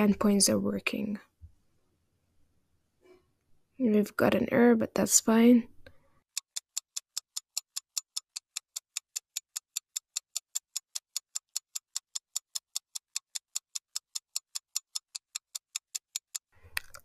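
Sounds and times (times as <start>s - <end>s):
rapid high-pitched clock ticking: 6.3s - 16.5s.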